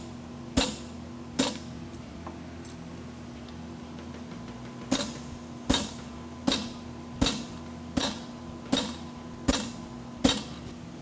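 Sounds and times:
hammer striking metal on anvil: 0:00.6 - 0:01.6, 0:04.9 - 0:10.6.

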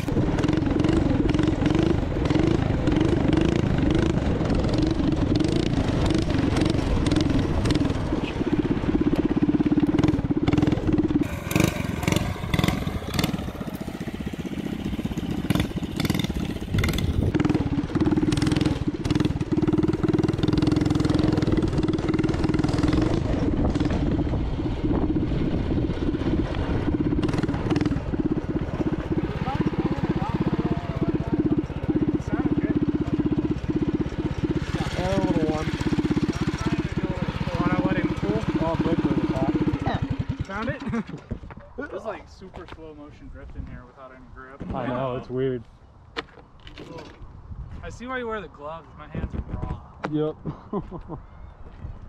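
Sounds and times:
small gas engine revving: 0:00.0 - 0:41.0
wind buffeting microphone: 0:00.0 - 0:41.9, 0:47.2 - 0:52.0.

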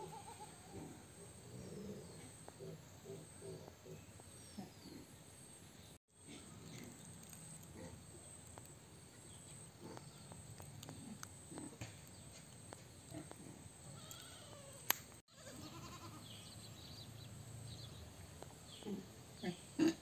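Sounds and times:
goats bleating faintly: 0:00.0 - 0:01.0, 0:13.9 - 0:16.4.

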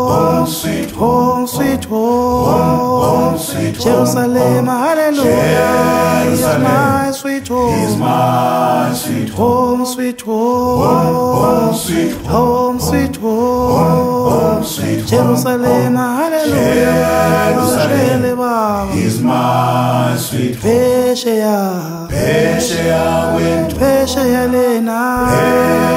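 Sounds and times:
a cappella choir singing: 0:00.0 - 0:25.9.

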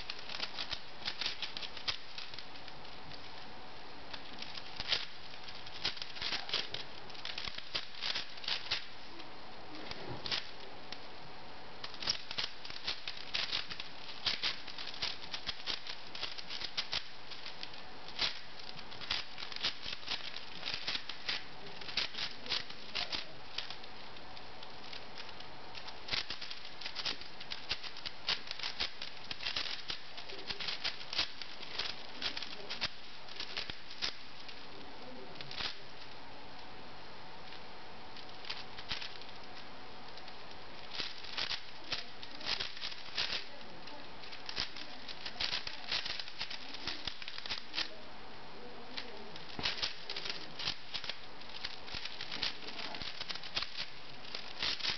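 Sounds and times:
puzzle cube plastic clicking: 0:00.0 - 0:02.7, 0:04.1 - 0:09.0, 0:11.8 - 0:23.9, 0:24.9 - 0:34.6, 0:38.2 - 0:39.4, 0:40.2 - 0:43.6, 0:44.2 - 0:47.9, 0:49.0 - 0:54.9
steady hiss: 0:00.0 - 0:54.9.

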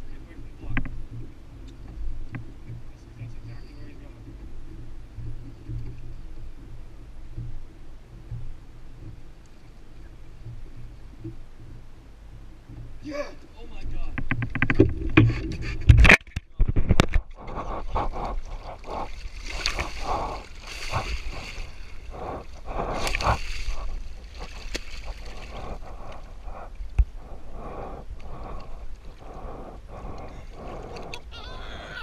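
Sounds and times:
water sloshing against hull: 0:00.0 - 0:32.0
fish thrashing and splashing: 0:17.3 - 0:26.7.

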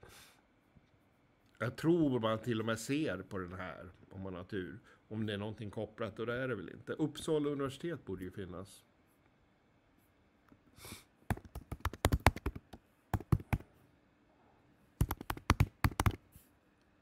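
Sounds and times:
typing on keyboard: 0:11.3 - 0:13.6, 0:15.0 - 0:16.2.

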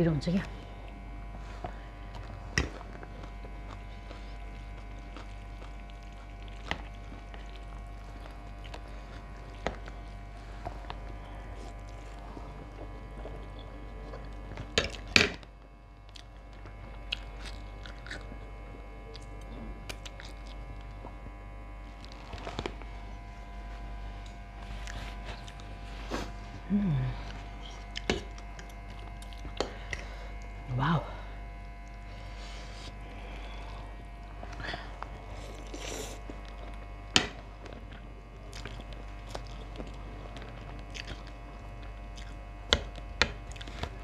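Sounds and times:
steady low hum: 0:00.0 - 0:44.0
chewing and slurping: 0:00.8 - 0:15.1, 0:16.1 - 0:21.3, 0:21.9 - 0:26.5, 0:31.6 - 0:44.0.

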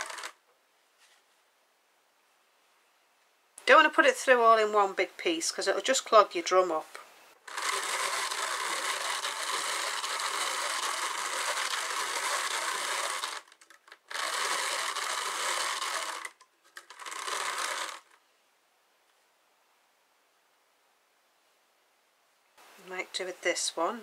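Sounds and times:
drum carder whirring: 0:00.0 - 0:00.3, 0:07.4 - 0:18.2.

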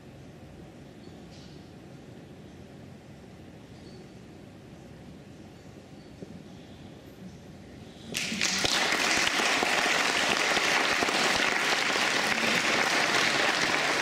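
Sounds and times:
audience applauding: 0:08.2 - 0:14.0.

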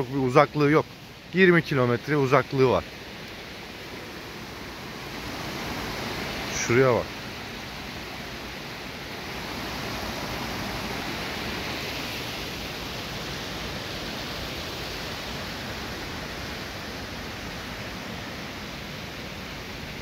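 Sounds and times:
water rushing over a cascade: 0:00.0 - 0:20.0.

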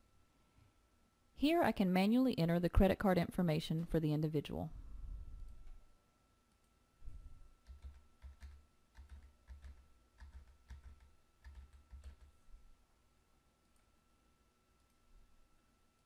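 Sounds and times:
faint keyboard typing: 0:05.3 - 0:05.8, 0:07.6 - 0:12.6, 0:13.6 - 0:14.0, 0:14.7 - 0:15.3.

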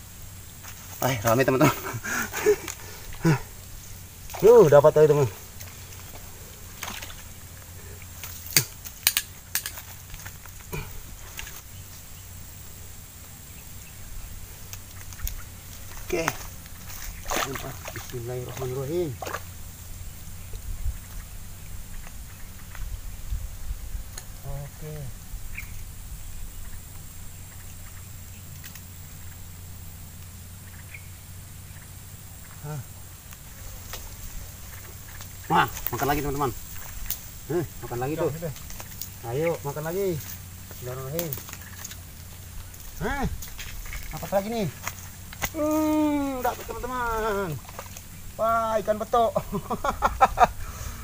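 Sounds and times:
constant low hum: 0:00.0 - 0:51.0
faint clicks: 0:14.6 - 0:18.2, 0:26.9 - 0:29.4, 0:33.2 - 0:37.3, 0:38.3 - 0:39.6, 0:40.2 - 0:46.7.

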